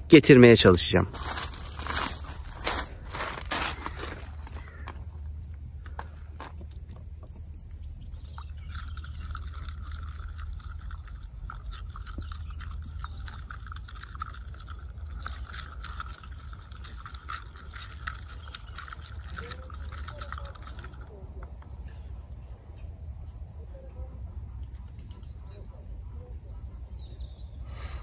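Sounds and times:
stick stirring mud in a mug: 8.3s - 21.1s.

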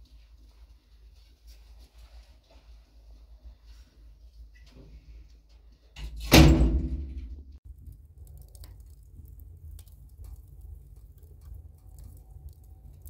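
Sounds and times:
door banging shut: 6.0s - 7.4s
wood stove fire rumbling: 7.5s - 13.0s.

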